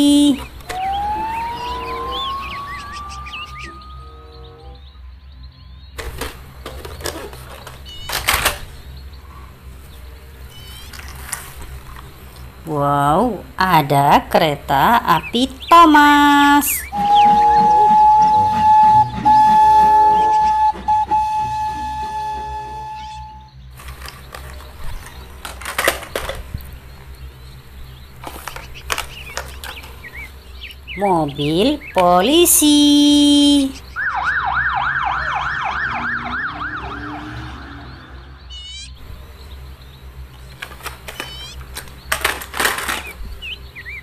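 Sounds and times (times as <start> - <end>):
steady low hum: 0.0 - 44.0
plastic toys knocking together: 6.0 - 8.6, 23.8 - 26.7, 28.2 - 30.0, 40.6 - 43.2.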